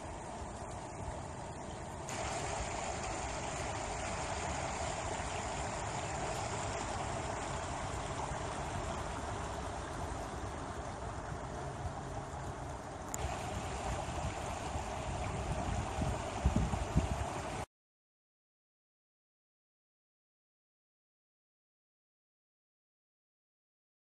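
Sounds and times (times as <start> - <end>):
steady outdoor rushing noise: 0.0 - 17.7.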